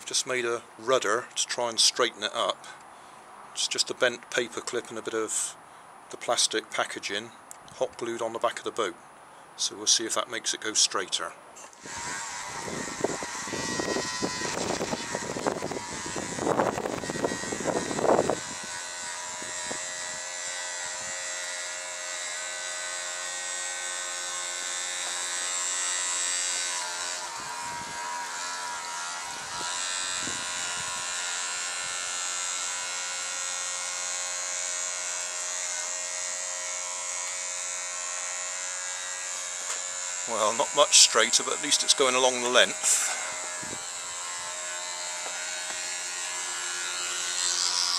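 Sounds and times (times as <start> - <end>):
wind hiss on microphone: 11.8 - 21.2, 27.2 - 28.1, 29.2 - 32.1, 42.8 - 44.0
electric toothbrush buzzing: 11.8 - 47.9.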